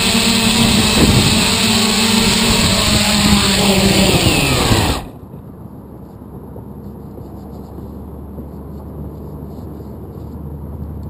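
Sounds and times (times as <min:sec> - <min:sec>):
drone motors humming: 0:00.0 - 0:05.2.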